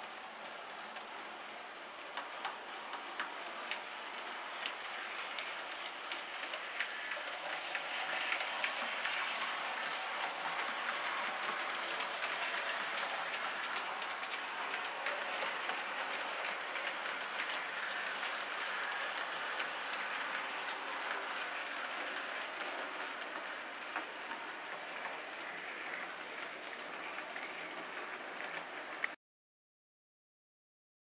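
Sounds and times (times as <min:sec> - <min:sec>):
wheels clicking over rail joints: 0:00.0 - 0:29.2
model train motor whirring: 0:03.2 - 0:26.5.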